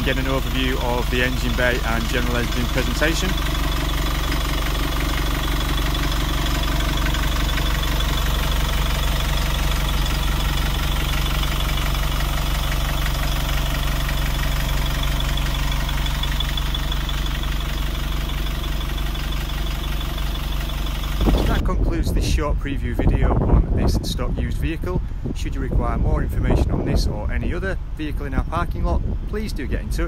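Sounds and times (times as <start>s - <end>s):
bus diesel engine idling: 0.0s - 21.8s.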